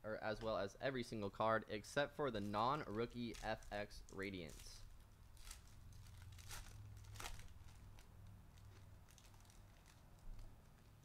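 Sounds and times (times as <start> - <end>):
foil pack crinkling and tearing: 2.4 - 10.8.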